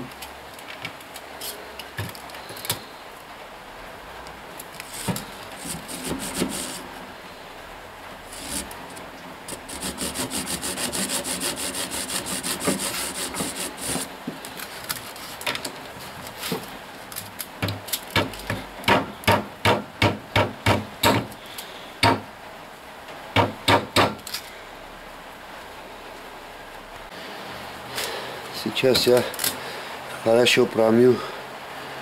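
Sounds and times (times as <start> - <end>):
stick scraping inside tubes: 4.8 - 6.8, 8.2 - 15.5.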